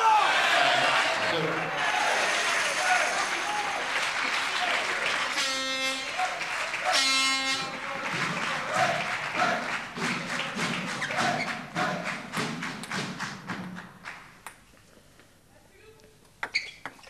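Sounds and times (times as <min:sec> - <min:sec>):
spectators clapping in rhythm: 0:00.0 - 0:14.7
horn blast: 0:01.8 - 0:09.7.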